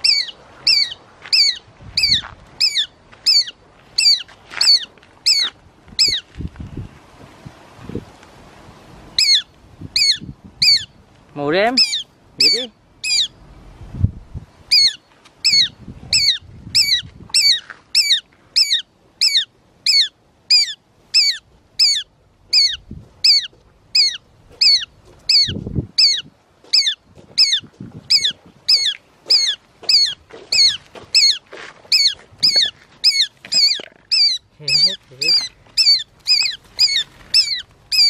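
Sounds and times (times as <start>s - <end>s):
hawk calling: 0.0s - 6.3s, 9.2s - 11.0s, 11.7s - 13.4s, 14.7s - 38.0s
rustle of wings and dry leaves: 27.6s - 38.0s.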